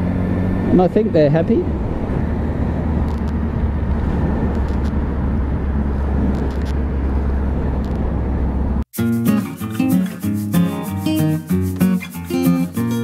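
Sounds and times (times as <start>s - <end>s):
wind on microphone: 1.7s - 8.8s.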